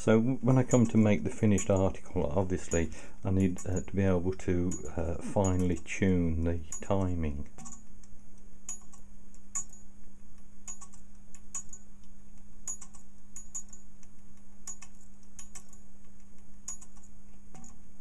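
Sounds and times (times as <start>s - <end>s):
pendulum ticking: 0.0s - 18.0s
steady low hum: 0.0s - 18.0s.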